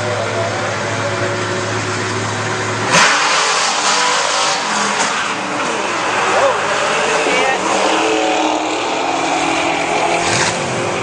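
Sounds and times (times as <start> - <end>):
drag racing engine revving: 0.0 - 11.0.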